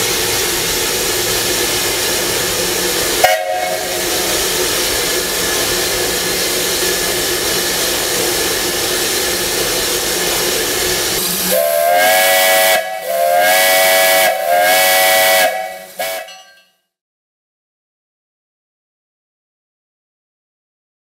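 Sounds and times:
steam venting hiss: 0.0s - 16.3s
steam whistle blasts: 3.2s - 4.5s, 11.2s - 16.4s.

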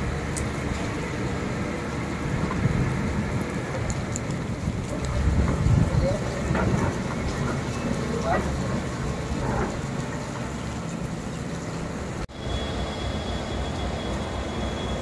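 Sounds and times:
floodwater rushing: 0.0s - 15.0s
heavy rain: 0.0s - 15.0s
high steady whine: 12.3s - 15.0s.

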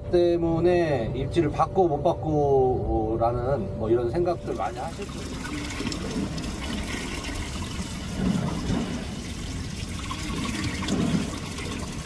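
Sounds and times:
water rushing along boat hull: 4.4s - 12.0s.

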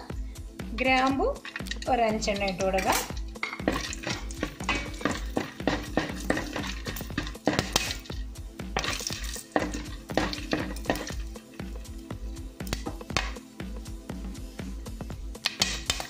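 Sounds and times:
background music: 0.0s - 16.0s
spatula scraping metal pan: 1.4s - 8.2s, 8.8s - 11.7s.

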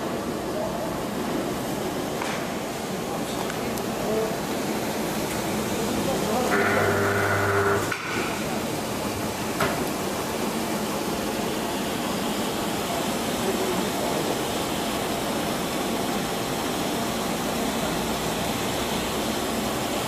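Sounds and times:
paper tube machine running: 4.0s - 9.3s.

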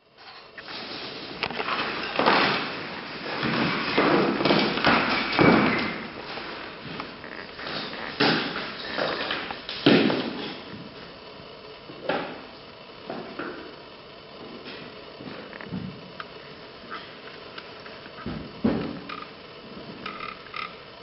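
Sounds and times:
objects thudding onto hard floor: 1.7s - 2.7s, 3.3s - 7.0s, 7.6s - 10.6s, 18.2s - 19.0s.

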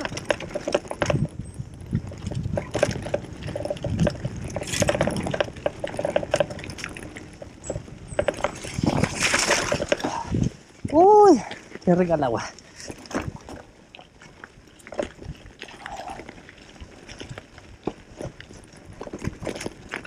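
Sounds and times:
bike rattling over rocky track: 0.0s - 20.0s
tyres splashing through water: 8.5s - 10.3s.

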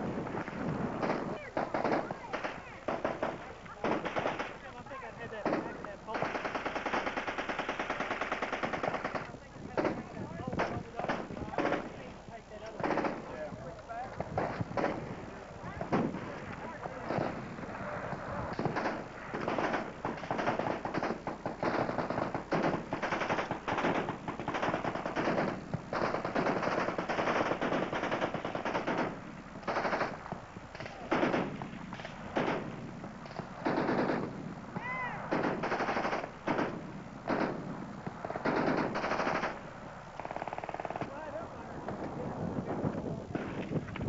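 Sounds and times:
machine gun bursts: 1.0s - 4.7s, 5.3s - 12.0s, 12.7s - 13.4s, 18.6s - 30.2s, 30.8s - 32.8s, 33.6s - 34.4s, 35.3s - 37.6s, 38.4s - 39.6s.

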